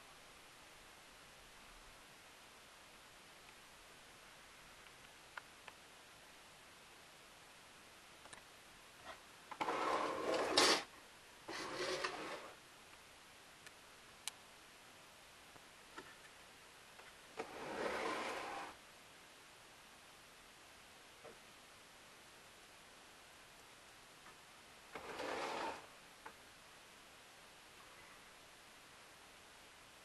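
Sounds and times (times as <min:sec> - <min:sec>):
faint clicks: 0:08.2 - 0:08.5.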